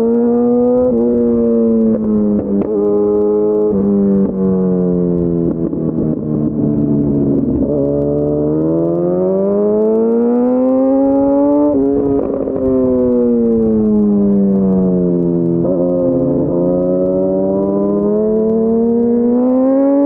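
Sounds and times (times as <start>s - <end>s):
motorcycle engine accelerating: 0.0s - 20.0s.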